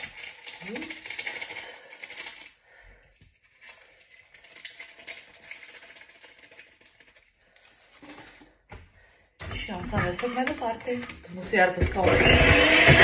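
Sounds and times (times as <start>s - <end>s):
paper sachet rustling: 0.0s - 2.6s, 3.2s - 8.4s.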